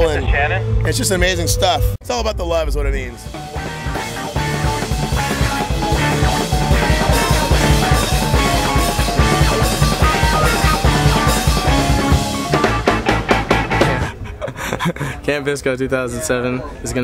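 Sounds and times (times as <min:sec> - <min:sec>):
rock band playing: 0:02.9 - 0:14.2
electric guitar: 0:03.2 - 0:14.1
bass drum thumps: 0:03.3 - 0:14.1.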